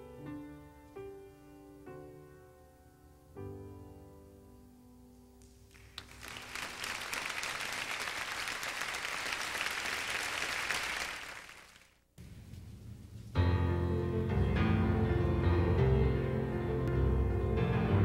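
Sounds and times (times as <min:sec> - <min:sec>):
audience applause: 0:05.7 - 0:12.0
piano chord: 0:13.4 - 0:18.0.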